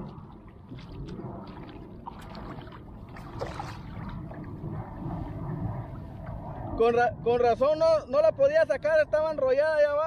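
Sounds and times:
water lapping against kayak hull: 0.0s - 6.7s
wind rumble on microphone: 0.0s - 10.0s.

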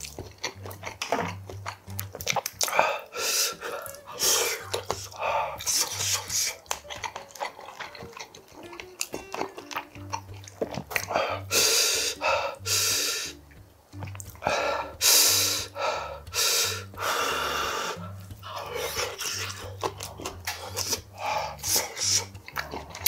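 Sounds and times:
chewing: 0.0s - 23.0s
loud hissing breaths: 2.7s - 6.6s, 11.1s - 13.4s, 14.4s - 19.5s, 20.5s - 22.3s.

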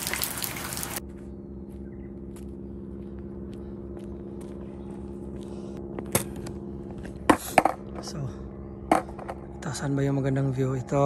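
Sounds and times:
steady low hum: 0.9s - 11.0s
footsteps on asphalt: 1.0s - 7.3s.

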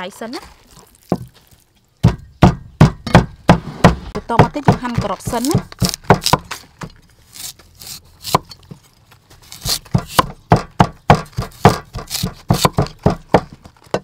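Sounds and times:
cleaver slicing carrot on board: 7.3s - 8.5s, 9.4s - 13.5s.

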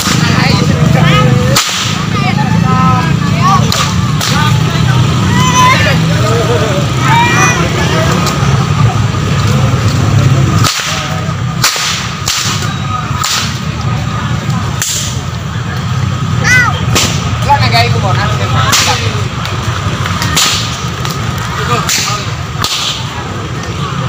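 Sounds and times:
whips cracking: 0.0s - 0.3s, 1.5s - 2.1s, 3.6s - 4.5s, 10.6s - 13.6s, 14.8s - 15.2s, 16.9s - 17.3s, 18.7s - 19.1s, 20.0s - 23.2s.

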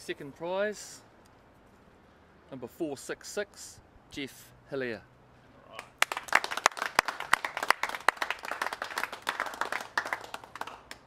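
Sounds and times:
crowd clapping: 5.8s - 11.0s.

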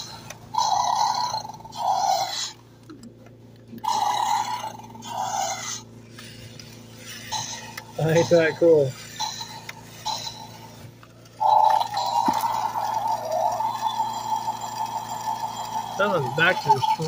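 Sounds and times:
toy dinosaur electronic roar: 0.0s - 2.6s, 3.8s - 17.0s
faint mechanical hum: 0.0s - 17.0s.

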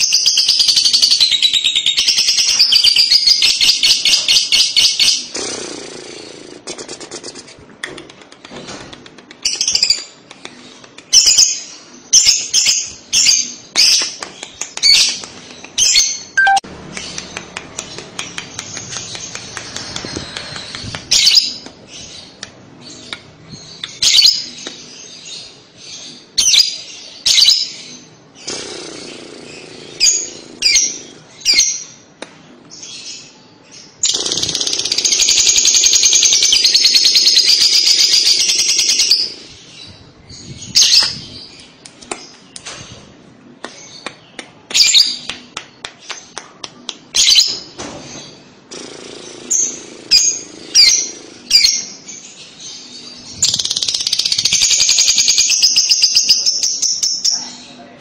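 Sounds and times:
bird chirping: 0.0s - 32.1s, 47.1s - 57.9s
bird rapid chatter: 2.3s - 11.4s, 13.7s - 22.4s, 28.4s - 31.2s, 34.0s - 39.6s.

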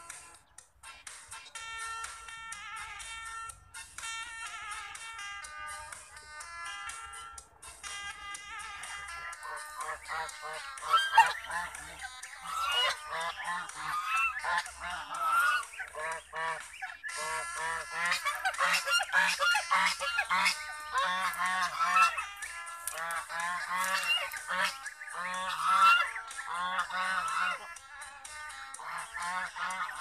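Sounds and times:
ducks quacking: 7.2s - 30.0s.

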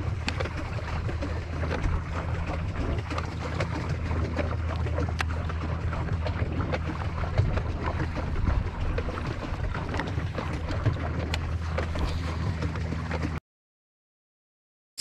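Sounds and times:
wind on microphone: 0.0s - 12.7s
steady low hum: 0.0s - 13.4s
waves lapping against boat hull: 0.0s - 13.4s
small irregular clicks: 0.2s - 5.4s.

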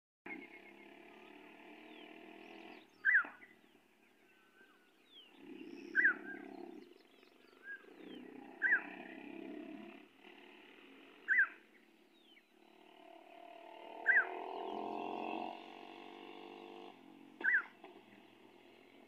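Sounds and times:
distant vehicle engine surging: 5.3s - 19.0s.

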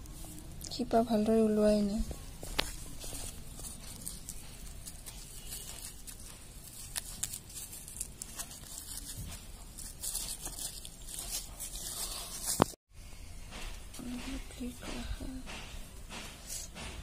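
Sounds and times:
leaves rustling and crackling: 2.4s - 12.8s.

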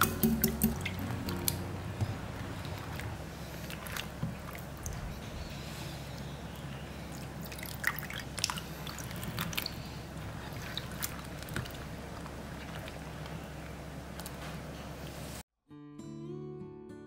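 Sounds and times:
kitchen clicks and taps: 0.0s - 2.1s
low steady hum: 0.0s - 15.4s.

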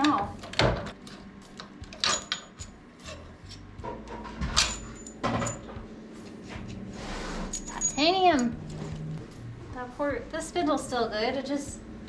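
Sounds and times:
metal tools clinking and knocking: 1.9s - 3.6s, 4.3s - 5.8s, 7.5s - 8.6s.

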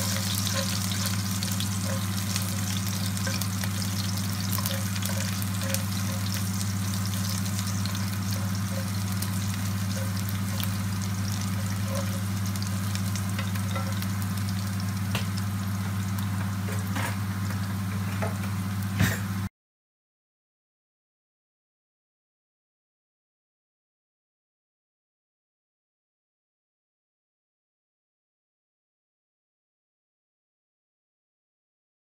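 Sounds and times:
spatula scraping pan: 0.0s - 14.6s
garlic sizzling in oil: 0.0s - 19.4s
steady low hum: 0.0s - 19.4s.

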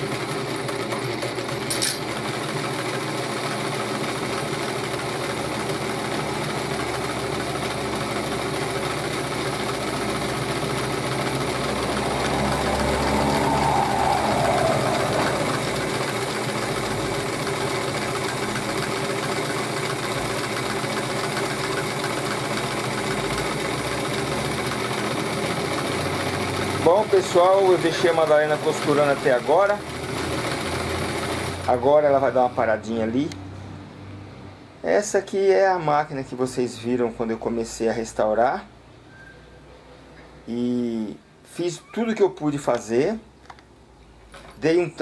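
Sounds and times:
sewing machine running: 0.0s - 32.8s.

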